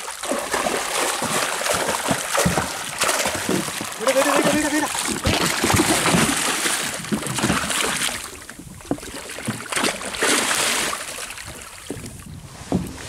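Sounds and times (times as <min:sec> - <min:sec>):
fish splashing in water: 0:00.0 - 0:12.2.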